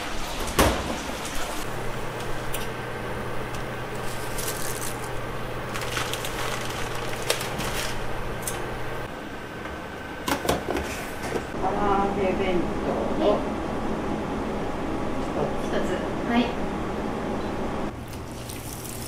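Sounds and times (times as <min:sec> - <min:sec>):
steady low hum: 0:01.6 - 0:18.1
water boiling and bubbling: 0:17.9 - 0:19.0.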